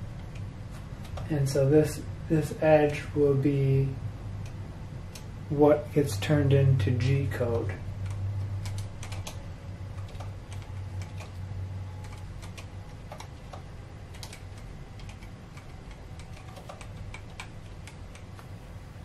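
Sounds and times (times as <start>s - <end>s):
steady low hum: 0.0s - 19.0s
keyboard and mouse clicks: 0.2s - 1.3s, 8.0s - 9.4s, 10.0s - 11.4s, 12.0s - 18.5s.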